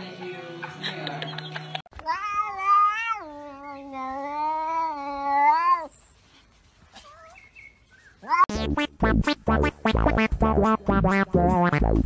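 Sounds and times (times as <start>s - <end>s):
cat yowling: 2.1s - 5.9s.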